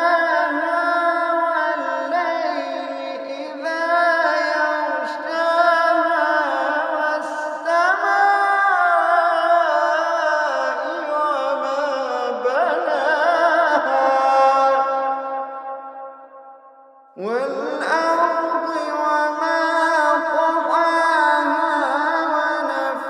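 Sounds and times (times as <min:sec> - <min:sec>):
man chanting melodically: 0:00.0 - 0:16.0, 0:17.1 - 0:23.0.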